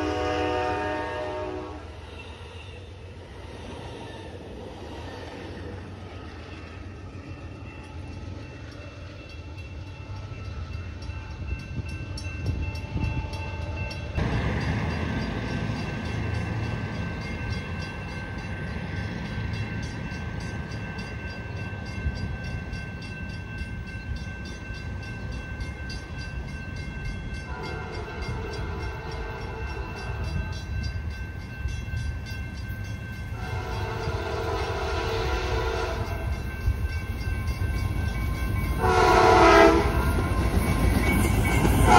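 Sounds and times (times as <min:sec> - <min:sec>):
train horn blasts: 0:00.0 - 0:03.0, 0:27.4 - 0:30.6, 0:33.4 - 0:36.3, 0:38.8 - 0:40.3
train rumbling: 0:00.0 - 0:41.9.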